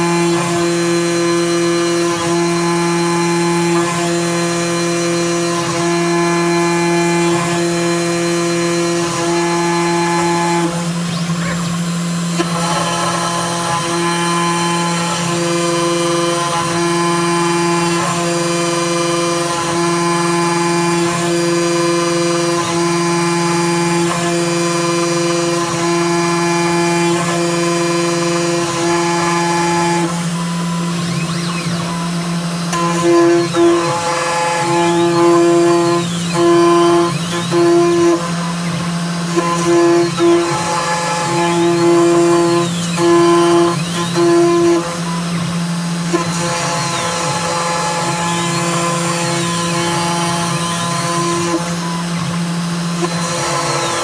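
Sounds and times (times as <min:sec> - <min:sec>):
router spindle whining: 0:00.0 - 0:54.0.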